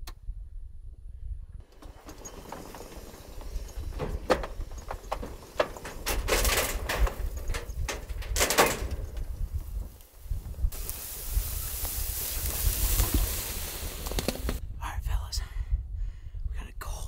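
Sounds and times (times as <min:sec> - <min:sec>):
clunks and rattles: 0:01.6 - 0:10.8
low engine rumble: 0:01.6 - 0:14.6.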